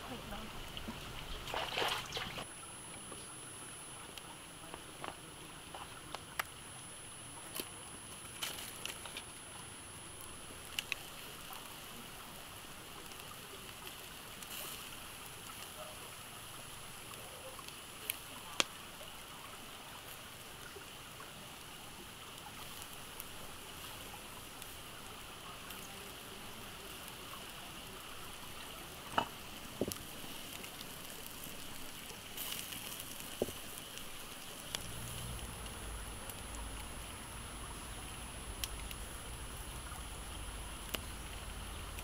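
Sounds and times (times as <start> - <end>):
wood fire crackling: 0.0 - 42.0
fat sizzling: 0.2 - 19.4, 22.3 - 42.0.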